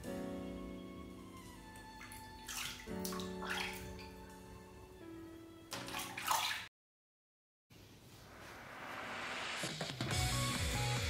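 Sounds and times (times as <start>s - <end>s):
background music: 0.0s - 6.3s, 9.2s - 11.0s
water splashing in plastic tub: 2.0s - 4.2s, 5.7s - 6.7s.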